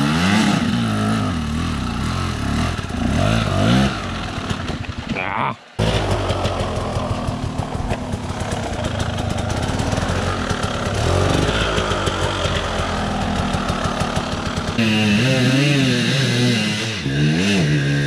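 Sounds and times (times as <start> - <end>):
dirt bike engine revving: 0.0 - 5.1, 5.8 - 18.0
engine with wavering pitch: 5.8 - 18.0.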